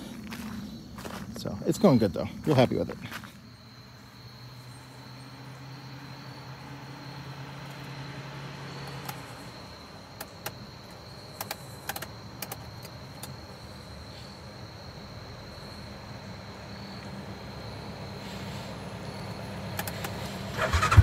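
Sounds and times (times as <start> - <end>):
distant bus engine drone: 0.0 - 21.0
sharp ticks: 8.8 - 9.4, 10.2 - 13.4, 19.7 - 21.0.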